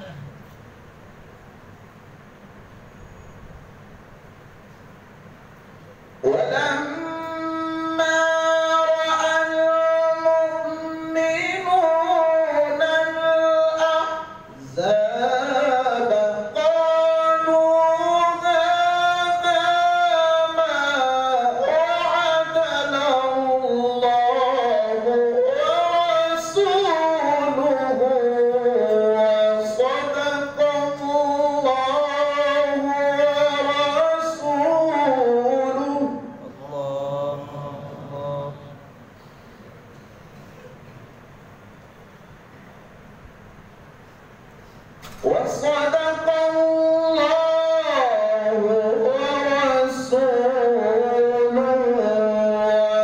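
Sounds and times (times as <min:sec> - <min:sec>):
man reciting melodically into microphone: 0:06.2 - 0:39.0, 0:45.0 - 0:53.0.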